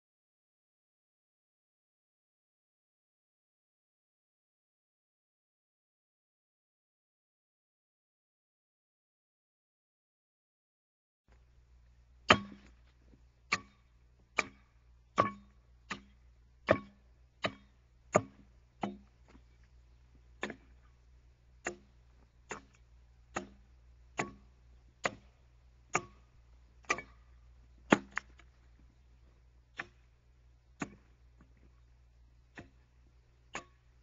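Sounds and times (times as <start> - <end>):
axe chopping into log: 12.3 - 12.8, 13.5 - 13.8, 14.4 - 14.6, 15.2 - 19.1, 20.4 - 20.7, 21.6 - 21.9, 22.5 - 25.3, 26.8 - 27.2, 27.9 - 28.4, 30.8 - 31.1.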